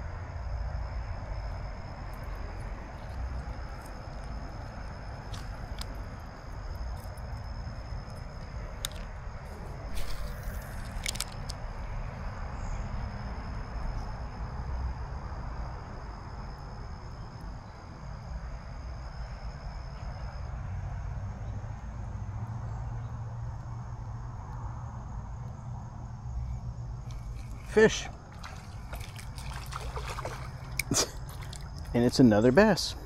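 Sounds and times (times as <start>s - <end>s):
insects trilling: 0.0s - 20.8s, 25.0s - 33.0s
creek water rushing: 27.1s - 33.0s.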